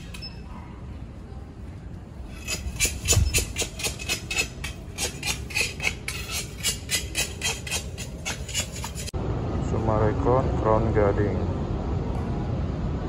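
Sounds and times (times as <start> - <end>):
scraping weeds from brick paving: 2.2 - 9.1.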